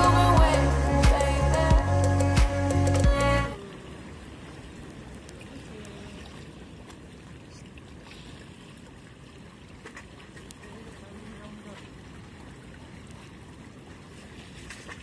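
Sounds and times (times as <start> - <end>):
water lapping against concrete: 3.1 - 15.0.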